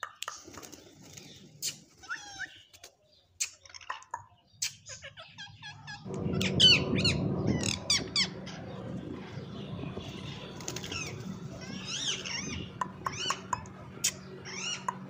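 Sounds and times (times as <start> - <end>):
parakeets chirping and squawking: 1.1 - 2.8, 3.4 - 15.0
steady low hum: 6.0 - 15.0.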